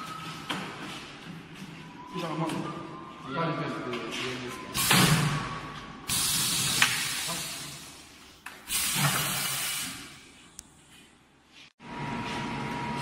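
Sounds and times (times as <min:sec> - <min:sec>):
compressed air hissing: 0:06.1 - 0:08.1, 0:08.7 - 0:10.3.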